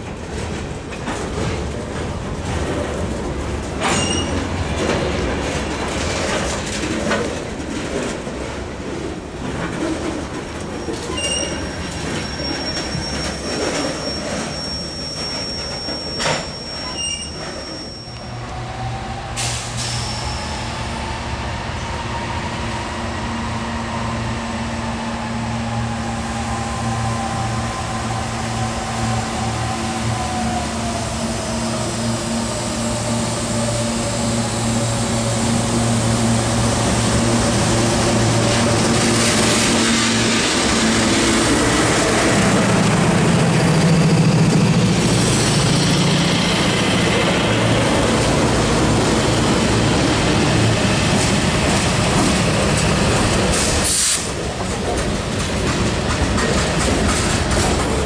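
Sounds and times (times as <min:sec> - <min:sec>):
diesel locomotive engine: 0:00.0 - 0:58.0
freight train rolling past: 0:00.0 - 0:58.0
high wheel squeal: 0:03.9 - 0:04.4, 0:10.8 - 0:18.4, 0:19.4 - 0:20.8
wheels clicking over rail joints: 0:51.1 - 0:58.0.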